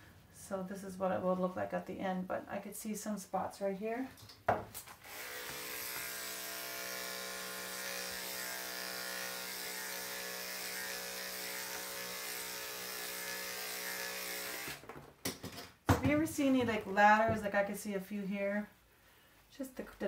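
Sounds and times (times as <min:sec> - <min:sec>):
electric clipper humming: 0:05.0 - 0:14.8.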